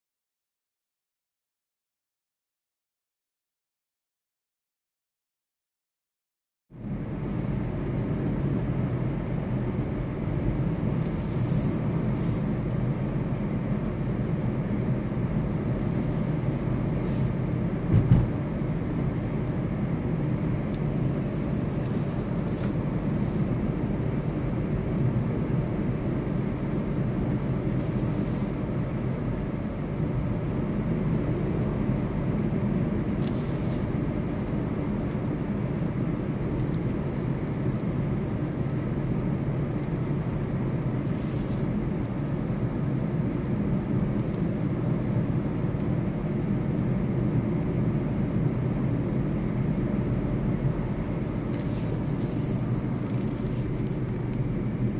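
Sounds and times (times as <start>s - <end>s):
road and engine rumble: 6.7s - 54.9s
brief thump: 17.9s - 18.3s.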